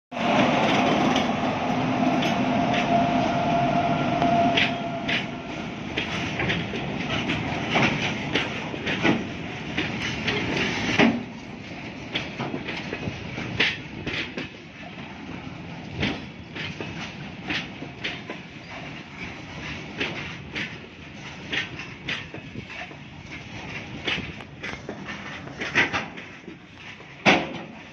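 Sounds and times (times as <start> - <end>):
locomotive droning: 0.1 - 8.6
train wheels clacking on rail joints: 0.2 - 27.9.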